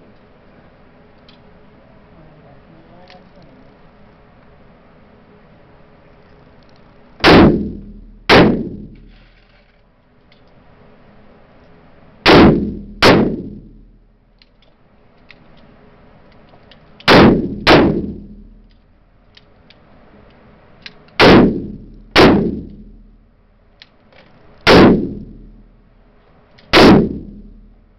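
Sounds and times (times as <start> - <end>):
handgun shots with echo: 7.2 - 9.0, 17.1 - 18.4, 24.7 - 25.4, 26.7 - 27.6.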